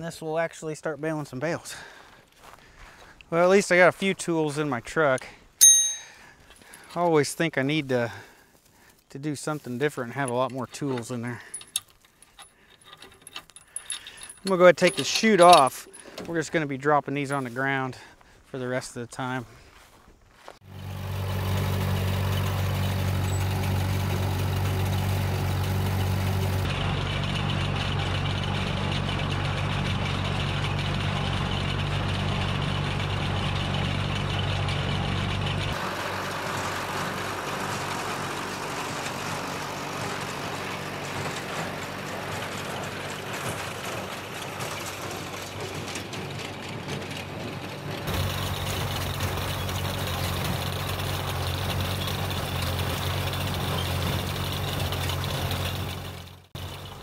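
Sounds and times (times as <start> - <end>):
tractor engine running: 9.5 - 17.6, 20.6 - 57.0.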